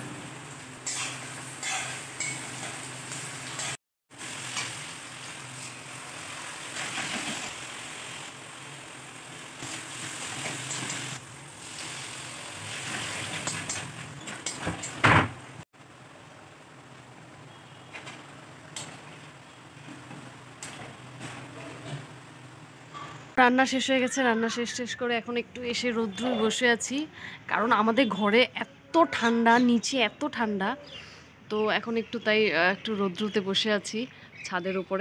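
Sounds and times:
soft sizzle: 0.0 - 15.0
metal spatula scraping a wok: 0.8 - 2.9.

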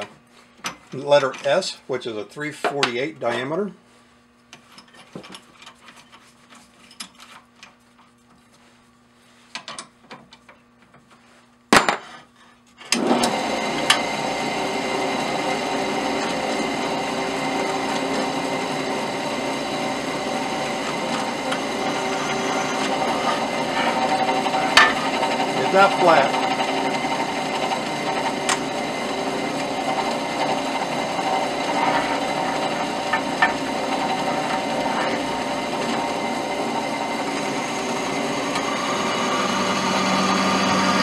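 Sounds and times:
drill press cutting steel: 12.9 - 41.0.

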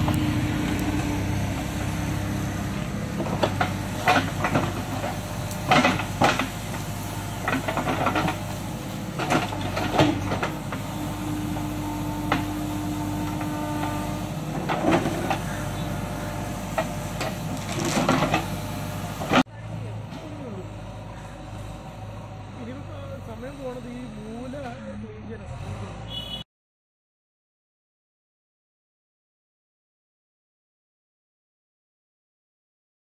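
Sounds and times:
diesel engine running: 0.0 - 26.4
bucket scraping and clanking: 3.2 - 8.6, 9.2 - 10.9, 13.2 - 15.8, 16.4 - 19.4.

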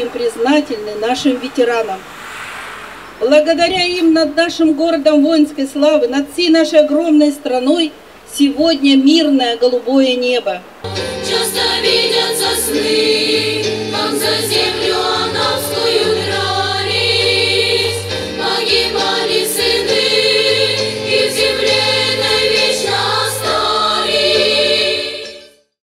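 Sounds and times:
instrumental backing track: 10.9 - 25.4
girls choir singing in unison: 10.9 - 25.6.

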